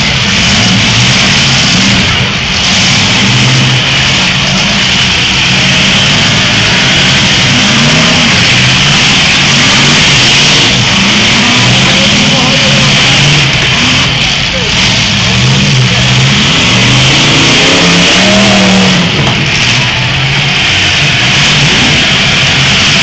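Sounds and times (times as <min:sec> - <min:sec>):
car engines revving: 0:00.0 - 0:23.0.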